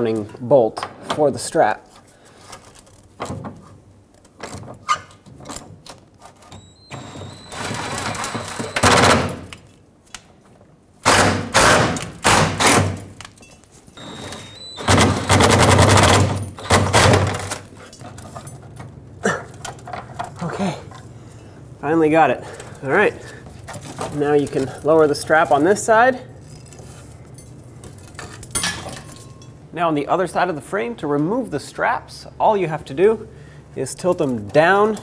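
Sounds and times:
impact wrench high whine: 6.5s - 9.4s, 14.0s - 17.5s
impact wrench hammering: 11.0s - 13.1s, 14.0s - 17.5s.

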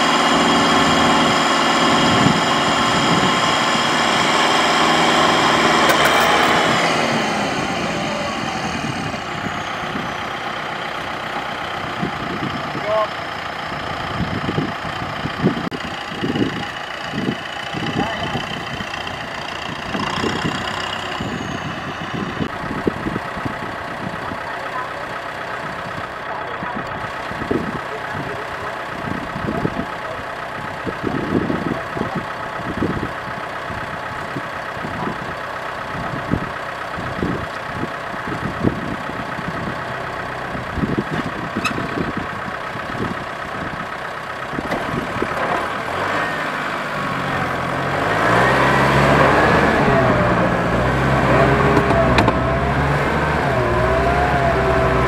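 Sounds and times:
tractor diesel engines: 0.0s - 55.0s
engine thumps: 44.5s - 45.8s, 51.6s - 52.6s.

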